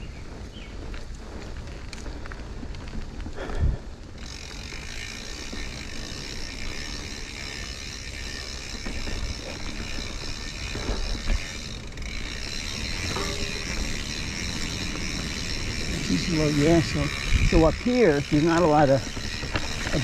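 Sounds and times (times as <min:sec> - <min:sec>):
mountain bike rolling and rattling: 0:00.0 - 0:20.0
bike knocking over bumps: 0:04.2 - 0:20.0.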